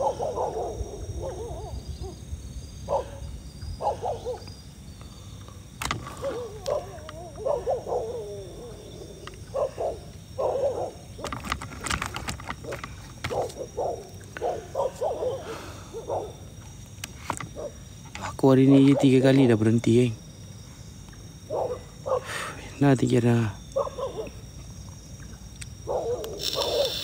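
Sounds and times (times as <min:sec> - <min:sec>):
dog howling and whining: 0:06.1 - 0:11.3.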